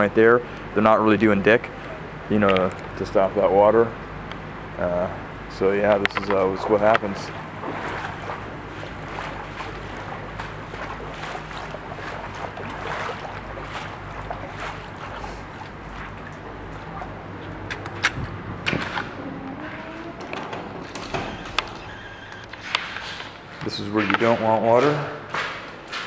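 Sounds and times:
low steady hum: 0.1s - 23.7s
sharp clicks: 20.9s - 23.3s.

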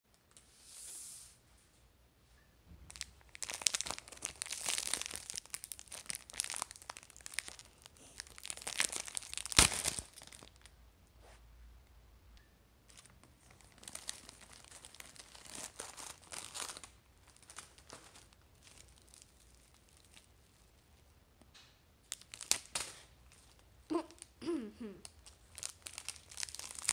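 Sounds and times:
plastic wrapper crinkling: 2.9s - 10.7s, 12.9s - 20.9s, 22.0s - 24.3s, 25.0s - 26.9s
wrapper ripping open: 2.9s - 10.7s, 12.9s - 20.3s, 22.1s - 24.3s, 25.0s - 26.9s.

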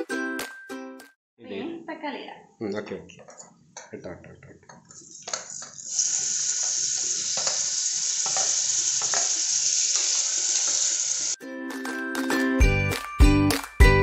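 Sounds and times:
food sizzling in hot oil: 5.0s - 11.4s.

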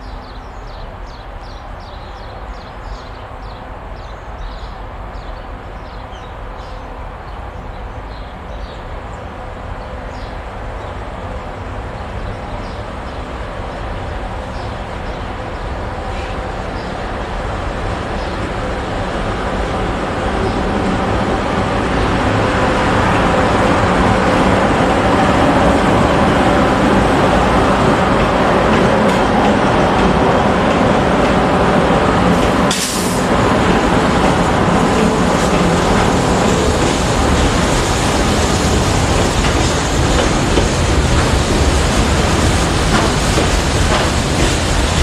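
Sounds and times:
electric locomotive hum: 8.9s - 45.0s
burst of hiss: 32.7s - 33.3s.

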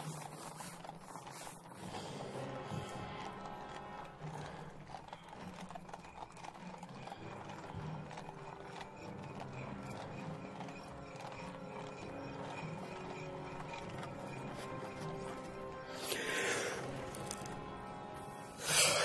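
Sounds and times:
horse hooves clip-clopping: 0.0s - 18.4s.

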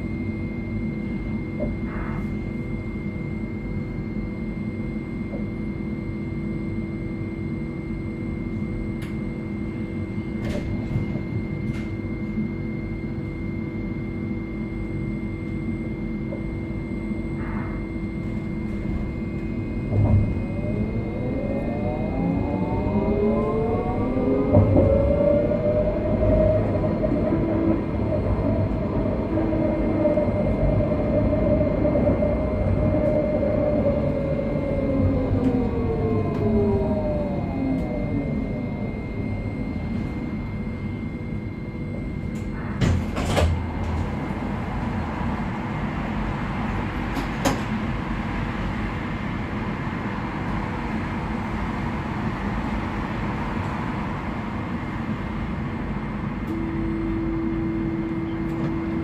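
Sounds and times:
traction motor whine: 0.0s - 47.6s
tram wheels rumbling on rails: 18.4s - 41.0s, 41.9s - 59.0s.

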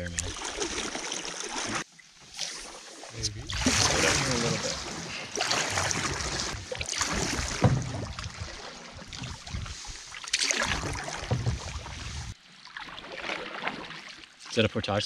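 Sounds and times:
paddle splashing water: 0.0s - 14.7s
paddle knocking: 3.5s - 9.8s, 10.4s - 12.3s.

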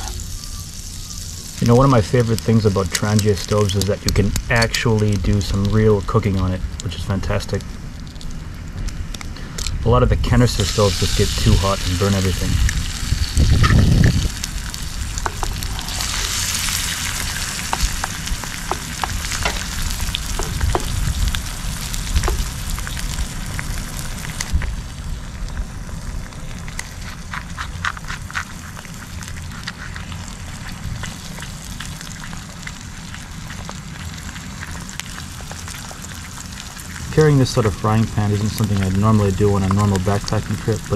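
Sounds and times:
egg sizzling in a pan: 0.0s - 6.9s, 10.4s - 40.9s
pops and clicks: 1.6s - 5.8s, 12.6s - 24.8s.

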